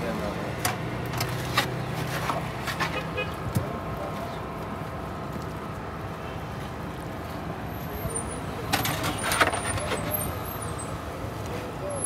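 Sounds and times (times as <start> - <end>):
busy street hum: 0.0 - 12.0
voices: 2.0 - 5.4, 7.6 - 12.0.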